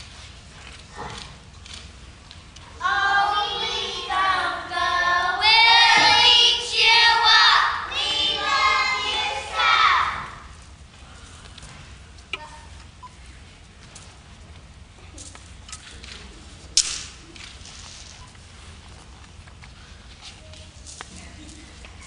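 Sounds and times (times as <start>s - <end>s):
children singing together: 2.8s - 10.5s.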